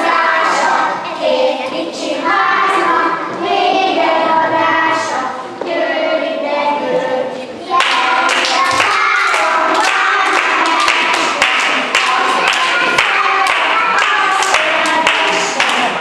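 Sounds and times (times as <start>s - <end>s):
children singing: 0.0s - 16.0s
hand claps: 7.8s - 16.0s.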